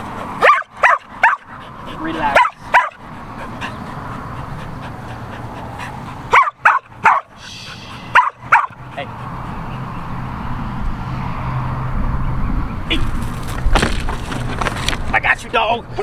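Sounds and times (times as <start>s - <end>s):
dog barking: 0.4s - 3.0s, 6.3s - 7.4s, 8.0s - 9.0s.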